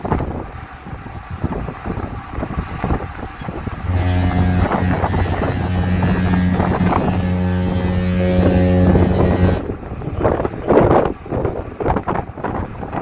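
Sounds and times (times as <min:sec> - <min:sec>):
wind buffeting microphone: 0:00.0 - 0:13.0
ship's horn blast: 0:03.5 - 0:10.7.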